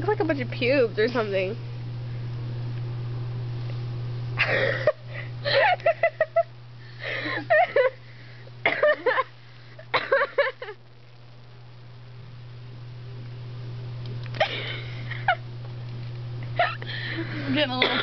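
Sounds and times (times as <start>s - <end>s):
steady low hum: 0.0s - 18.0s
women laughing: 4.4s - 8.0s, 8.8s - 9.3s, 10.0s - 10.8s, 14.4s - 15.4s, 16.6s - 17.6s.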